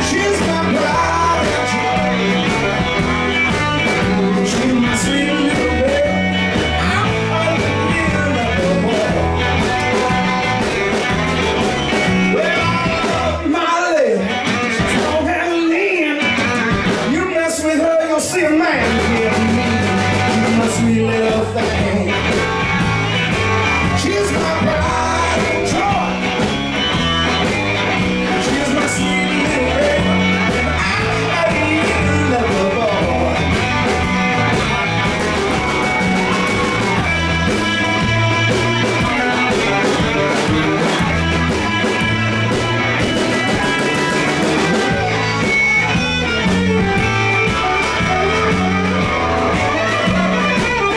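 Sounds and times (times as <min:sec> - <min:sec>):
person singing lead vocal: 0:00.0 - 0:10.6, 0:11.9 - 0:26.4, 0:28.1 - 0:34.8
bass line: 0:00.0 - 0:50.9
blues-rock band playing: 0:00.0 - 0:50.9.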